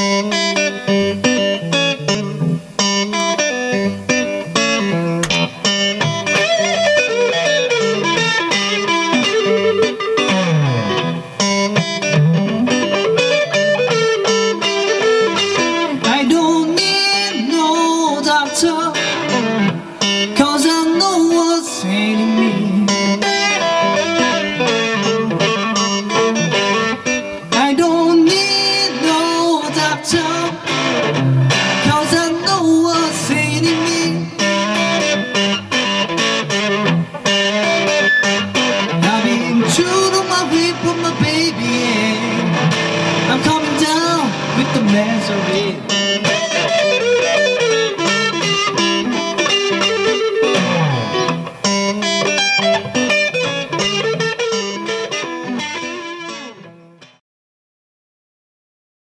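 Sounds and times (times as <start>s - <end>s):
electric guitar riffs: 0.0s - 57.2s
man singing: 14.7s - 35.3s, 38.7s - 51.2s.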